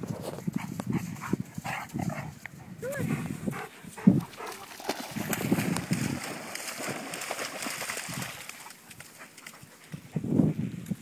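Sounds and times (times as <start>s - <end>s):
paw thumps and splashes: 3.5s - 10.1s.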